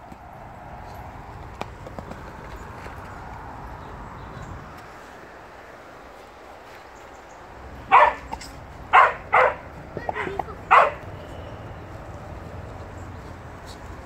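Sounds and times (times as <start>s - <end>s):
dog barking: 7.9s - 11.1s.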